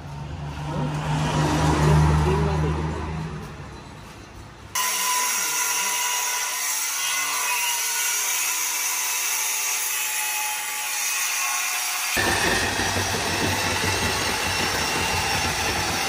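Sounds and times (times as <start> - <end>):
power tool running: 11.8 - 16.0.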